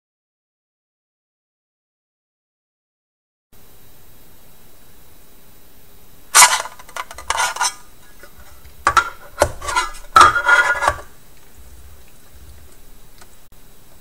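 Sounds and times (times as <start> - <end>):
hard drive casing scraping and clicking: 6.4 - 13.3.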